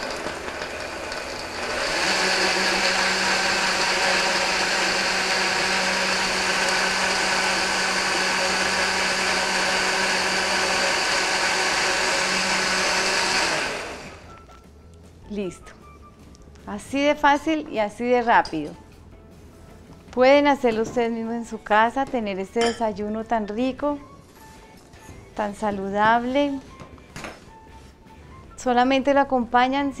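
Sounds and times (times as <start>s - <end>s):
blender whirring: 0.0s - 14.3s.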